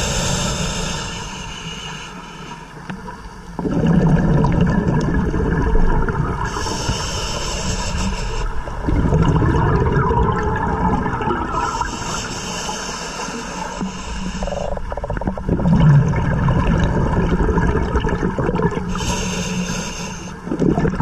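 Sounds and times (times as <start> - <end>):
regulator inhalation hiss: 0.0 - 3.0, 6.4 - 8.8, 11.5 - 14.9, 18.9 - 20.5
exhaled bubbles rushing: 3.6 - 6.8, 8.5 - 12.1, 14.4 - 19.0, 20.4 - 21.0.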